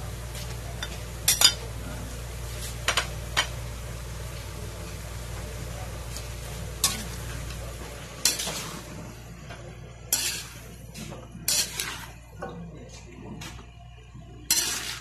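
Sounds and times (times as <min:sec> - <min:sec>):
metal spoon scraping a wok: 0:06.8 - 0:07.2, 0:08.2 - 0:08.8, 0:10.1 - 0:10.6, 0:11.4 - 0:12.2, 0:14.5 - 0:15.0.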